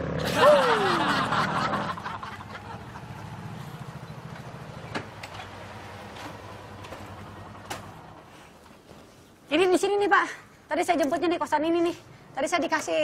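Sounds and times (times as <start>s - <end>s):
small motorcycle engines idling: 0.0s - 8.9s.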